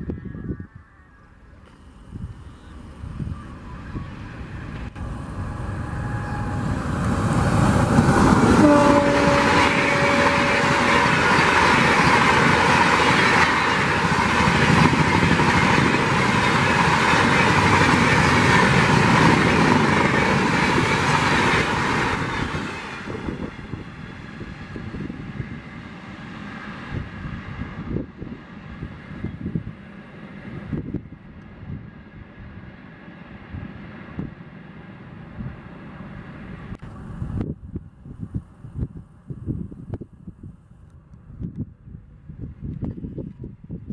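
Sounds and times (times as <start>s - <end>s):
low train rumble: 0.0s - 43.9s
train wheels rushing on rail: 2.2s - 37.6s.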